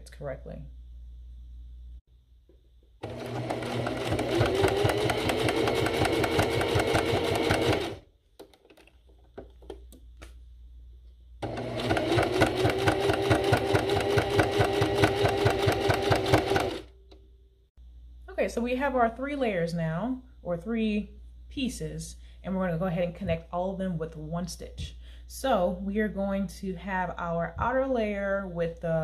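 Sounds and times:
sewing machine stitching: 0:03.0 - 0:08.0, 0:11.4 - 0:16.9.

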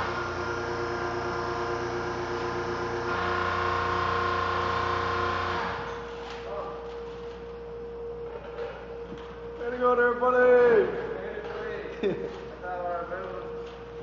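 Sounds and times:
hydraulic pump motor humming: 0:00.0 - 0:06.1.

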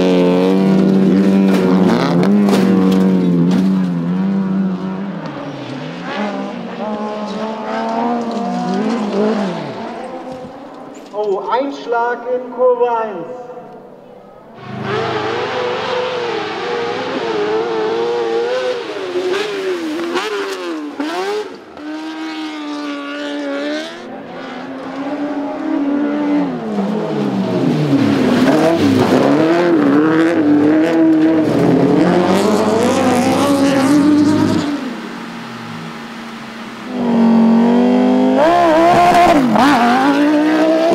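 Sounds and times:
race car engines revving: 0:00.0 - 0:11.3, 0:13.6 - 0:40.9.

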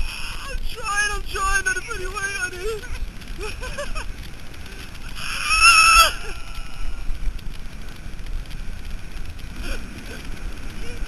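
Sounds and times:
wind on microphone: 0:00.0 - 0:11.0
girl screaming: 0:05.2 - 0:06.9.

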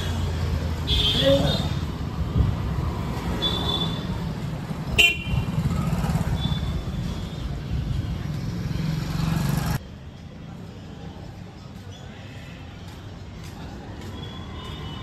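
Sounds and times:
motorbikes and scooters passing: 0:00.0 - 0:10.0.

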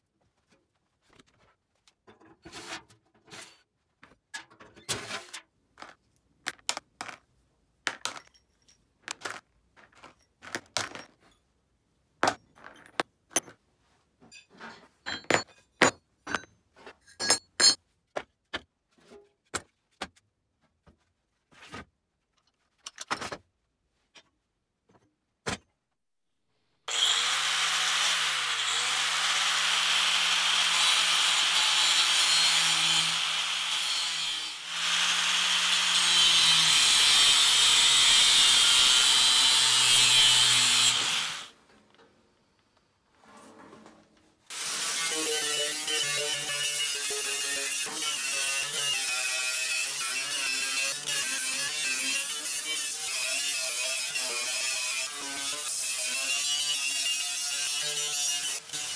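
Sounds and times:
nuts and bolts clinking: 0:07.9 - 0:11.6
angle grinder on steel: 0:26.9 - 0:41.6, 0:44.5 - 0:58.9.

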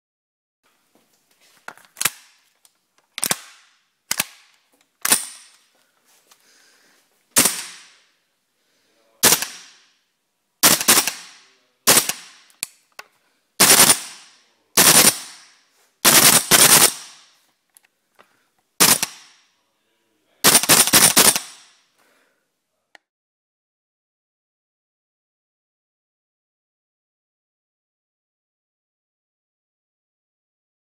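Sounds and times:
airsoft rifle shots: 0:03.2 - 0:05.6, 0:07.4 - 0:08.2, 0:09.2 - 0:10.0, 0:10.6 - 0:12.7, 0:13.6 - 0:17.4, 0:18.8 - 0:19.5, 0:20.4 - 0:21.8.

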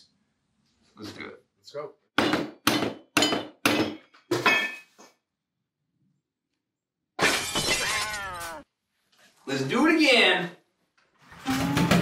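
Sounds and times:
hammer striking metal: 0:02.2 - 0:04.8.

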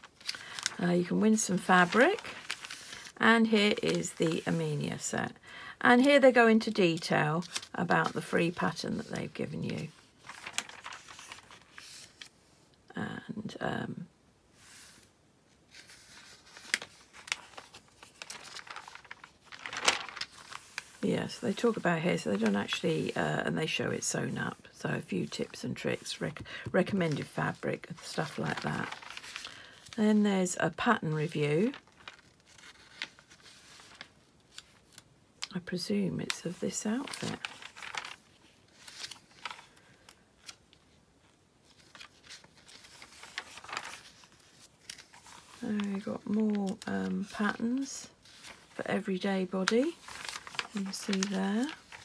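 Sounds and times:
magazine pages rustling: 0:00.0 - 0:12.4, 0:14.6 - 0:52.0.

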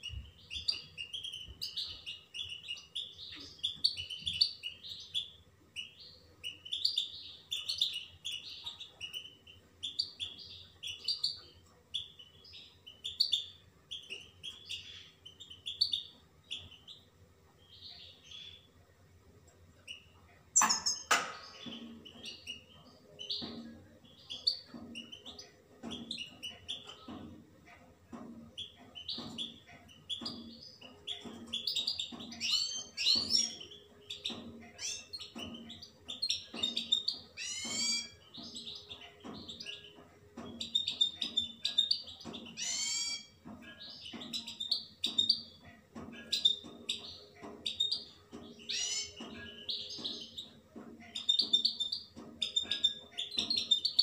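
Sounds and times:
goldfinch twittering and trilling: 0:28.6 - 0:45.6, 0:46.2 - 0:50.5.

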